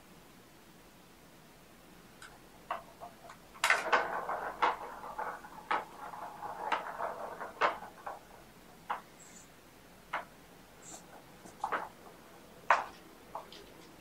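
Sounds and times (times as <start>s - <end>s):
plastic ball rattling on track: 2.2s - 14.0s.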